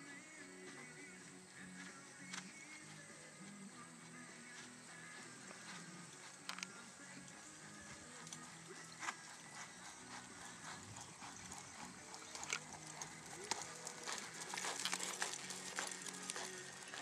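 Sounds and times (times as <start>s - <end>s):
horse hoofbeats on sand: 0.7s - 17.0s.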